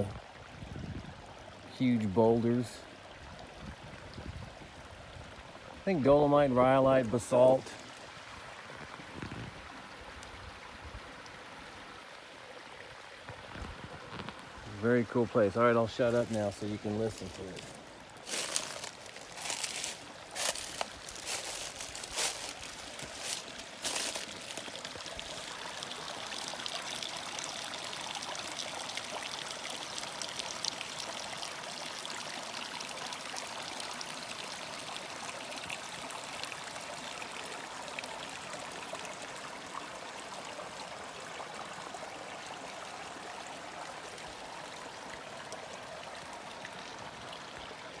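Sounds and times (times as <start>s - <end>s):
creek trickling over stones: 0.0s - 48.0s
sharp crackles and knocks: 13.2s - 14.7s.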